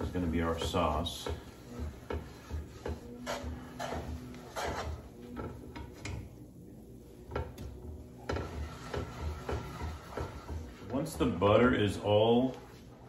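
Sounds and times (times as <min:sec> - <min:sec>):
metal fork scraping a skillet: 0:00.0 - 0:05.5, 0:08.3 - 0:11.3.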